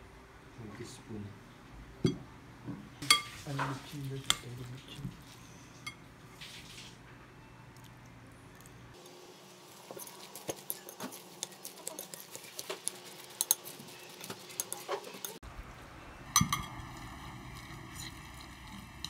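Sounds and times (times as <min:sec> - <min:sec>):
spoon scraping glass bowl: 0:09.9 - 0:15.4, 0:16.4 - 0:19.0.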